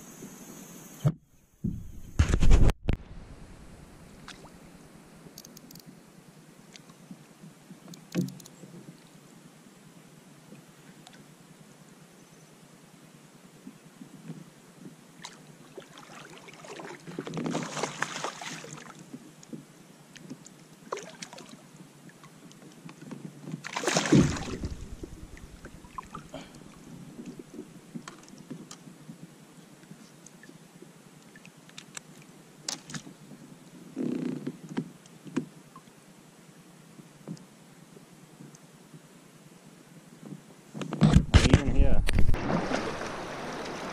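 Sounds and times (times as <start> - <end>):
water splashing: 3.6 - 4.9, 15.2 - 19.0, 23.6 - 27.6, 42.1 - 43.9
sharp loud hit: 24.1 - 26.2.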